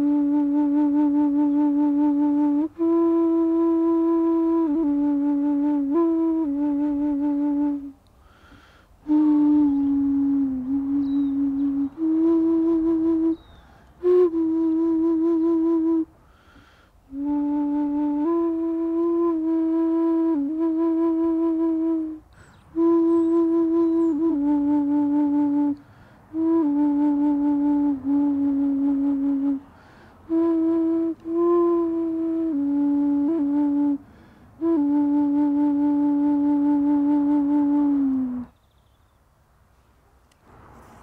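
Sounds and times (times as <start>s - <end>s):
wooden flute breathy notes: 0.0s - 38.6s.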